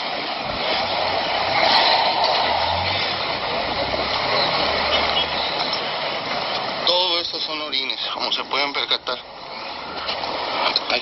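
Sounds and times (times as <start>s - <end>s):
outdoor noise hiss: 0.0s - 11.0s
vehicle engine humming: 0.2s - 6.8s.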